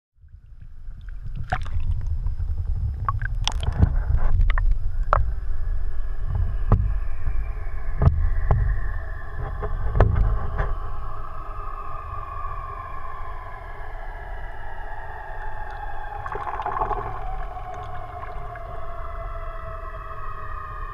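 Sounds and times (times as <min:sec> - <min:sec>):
underwater rumble of moving water: 0:00.2 - 0:20.9
underwater clicks and knocks: 0:03.0 - 0:05.3, 0:15.7 - 0:18.8
faint falling tone: 0:10.4 - 0:20.9.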